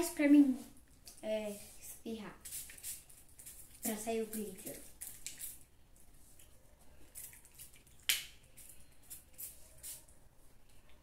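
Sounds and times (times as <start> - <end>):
spray bottle hissing: 2.4 - 4.5, 8.6 - 10.1.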